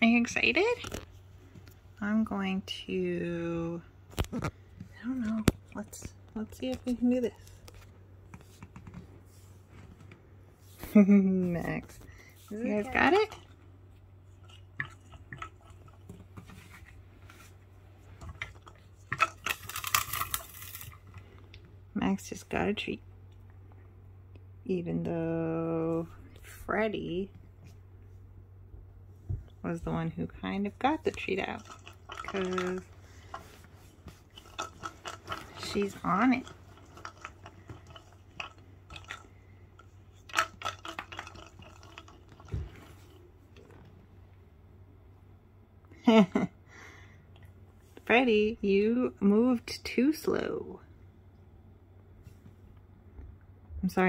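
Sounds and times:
cat scratching wooden toy: 0:31.3 - 0:39.3.

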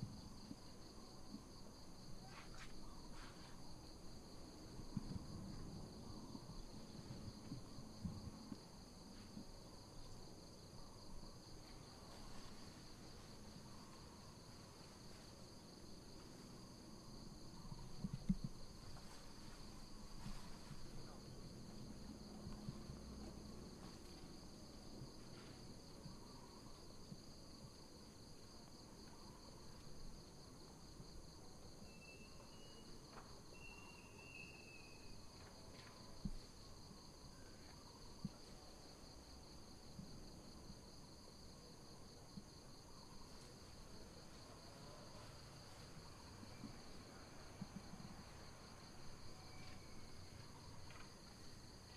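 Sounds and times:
high-pitched insect chorus: 0:00.1 - 0:51.9
faint whistles: 0:31.8 - 0:35.2, 0:49.3 - 0:50.4.

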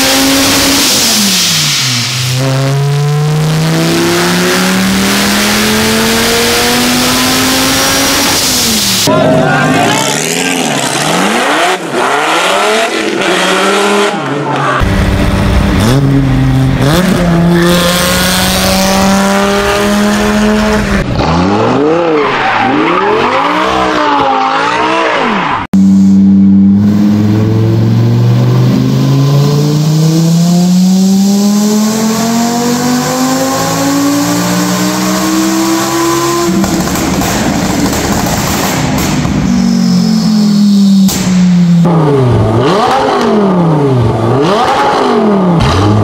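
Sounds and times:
engine full-throttle pull on dyno: 0:00.0 - 0:09.1, 0:14.8 - 0:22.1, 0:22.7 - 0:46.0
engine revving: 0:00.0 - 0:09.1, 0:09.8 - 0:46.0
car engine accelerating: 0:00.0 - 0:46.0.

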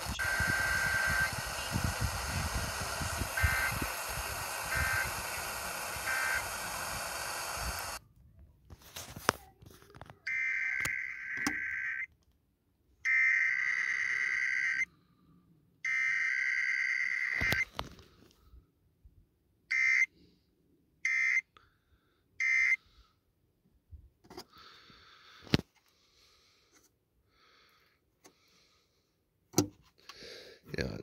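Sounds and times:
buzzing digital data bursts: 0:00.0 - 0:08.0, 0:10.3 - 0:12.1, 0:13.1 - 0:14.8, 0:15.9 - 0:17.6.

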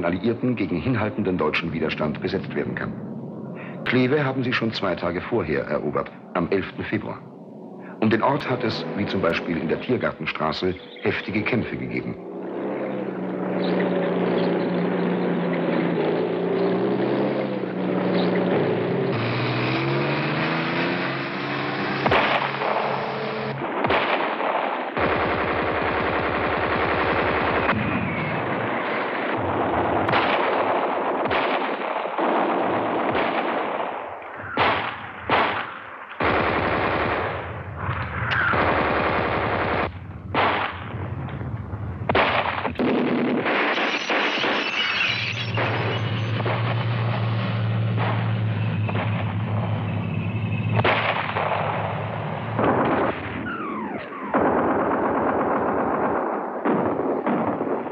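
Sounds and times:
low wavering drone: 0:01.7 - 0:23.6
single sharp gunshots: 0:22.0 - 0:25.4, 0:30.0 - 0:41.0, 0:42.1 - 0:46.9, 0:50.8 - 0:57.9.

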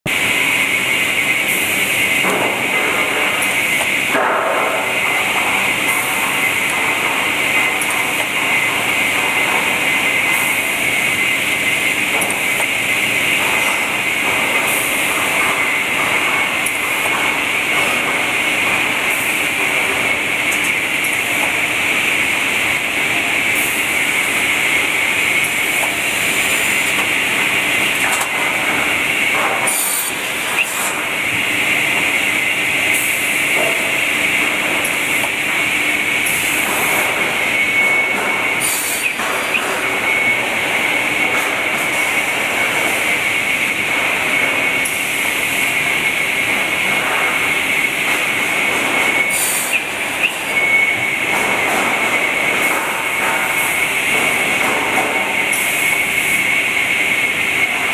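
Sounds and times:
sawing machine noise: 0:00.1 - 0:57.9.

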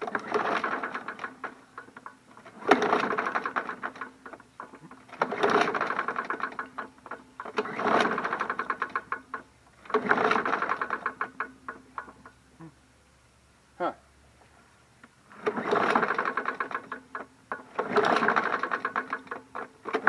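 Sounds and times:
engine cranking with clattering strokes: 0:00.0 - 0:12.4, 0:15.3 - 0:20.0
mower pull cord yanked: 0:00.0 - 0:12.4, 0:15.3 - 0:20.0
rattle inside engine: 0:05.2 - 0:12.3, 0:15.5 - 0:20.0.

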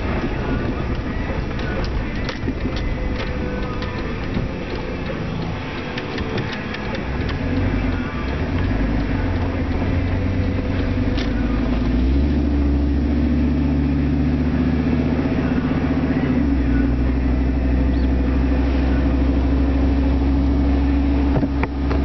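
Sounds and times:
light clicks and rattles: 0:00.0 - 0:12.0
road noise: 0:00.0 - 0:22.0
truck engine accelerating: 0:00.0 - 0:22.0.

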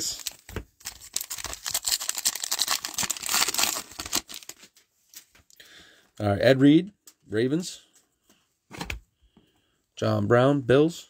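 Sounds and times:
wrapper tearing and crinkling: 0:00.0 - 0:04.7.

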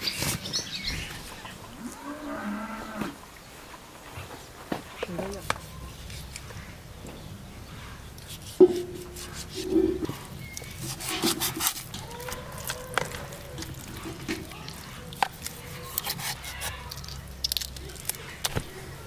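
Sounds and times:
knife slicing raw meat: 0:08.3 - 0:13.2, 0:15.2 - 0:17.0.

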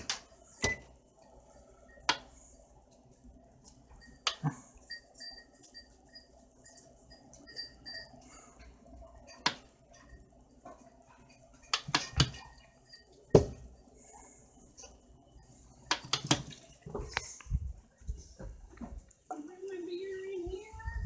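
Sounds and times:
kitchen objects knocking and clinking: 0:09.2 - 0:13.8.

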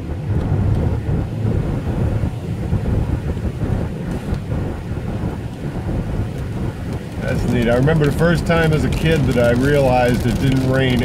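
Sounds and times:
car cabin road and wind noise: 0:00.0 - 0:11.0
tyres on wet pavement: 0:06.3 - 0:11.0.

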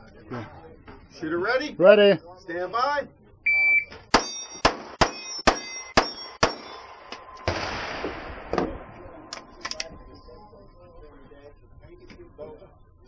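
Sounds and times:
shot timer beep: 0:03.5 - 0:06.4
pistol shots: 0:04.1 - 0:08.8
steel targets ringing: 0:04.2 - 0:07.1.

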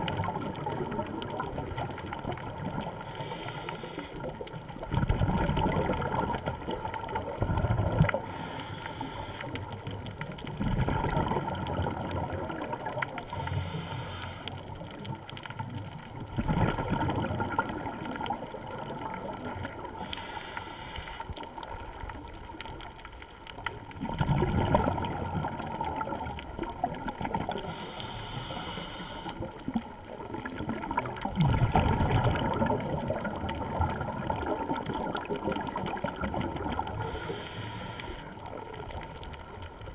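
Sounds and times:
bubbling of exhaled air: 0:00.0 - 0:22.8, 0:23.6 - 0:39.9
regulator hiss on inhalation: 0:03.1 - 0:04.2, 0:08.3 - 0:09.6, 0:13.3 - 0:14.5, 0:20.0 - 0:21.3, 0:27.6 - 0:29.4, 0:37.0 - 0:38.3.

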